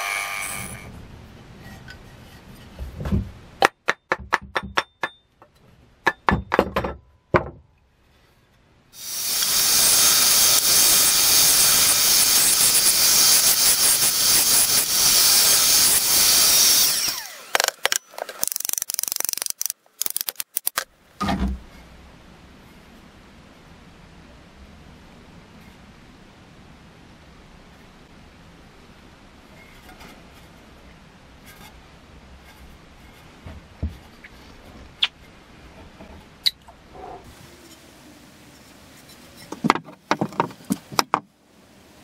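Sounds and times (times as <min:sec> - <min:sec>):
bandsaw cutting wood: 0:00.0 - 0:00.9, 0:09.0 - 0:19.7
sharp clicks and knocks: 0:17.5 - 0:21.6.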